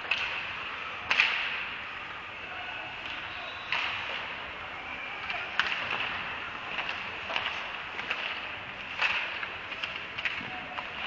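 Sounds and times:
hockey stick hitting puck: 0.0 - 1.7, 3.0 - 4.4, 5.3 - 11.0
skate blades scraping ice: 5.7 - 11.0.

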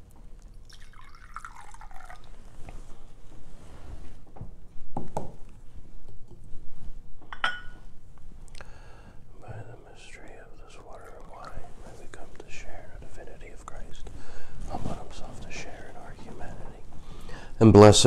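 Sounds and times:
wine pouring into a chalice: 0.6 - 2.6.

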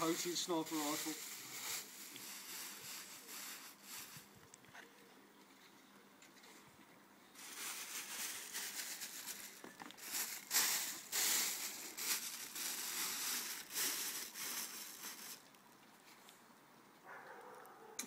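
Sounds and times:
plastic wrapping crinkling: 0.0 - 4.2, 7.4 - 15.6.

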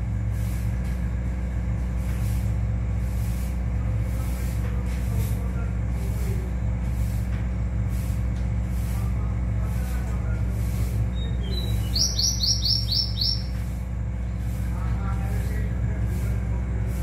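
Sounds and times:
songbird singing high notes: 11.1 - 13.6.

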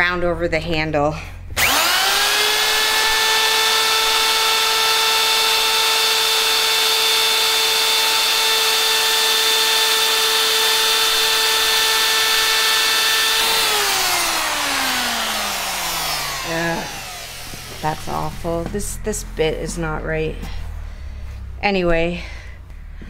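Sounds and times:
router whining: 1.5 - 21.7
router motor spinning down: 1.6 - 19.4
router cutting wood: 1.6 - 19.8.

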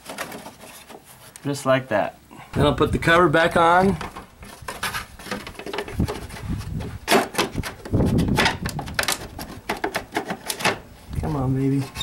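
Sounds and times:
plastic scraping and clicking: 0.0 - 1.4, 3.9 - 10.9.

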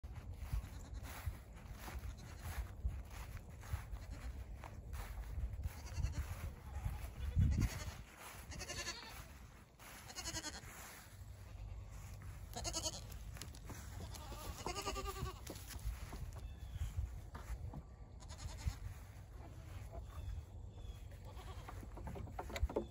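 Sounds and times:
goats bleating: 5.6 - 15.6, 18.2 - 18.9, 21.2 - 21.9.

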